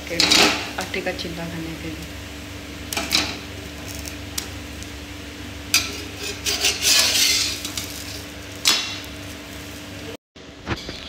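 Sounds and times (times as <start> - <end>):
steady low hum: 0.0 - 11.0
utensil scraping cookware: 5.7 - 9.4.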